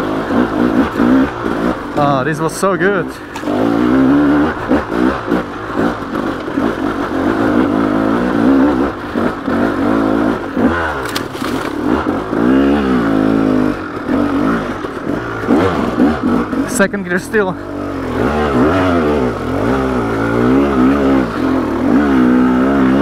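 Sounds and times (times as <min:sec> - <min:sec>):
two-stroke engine revving: 0:00.0 - 0:23.0.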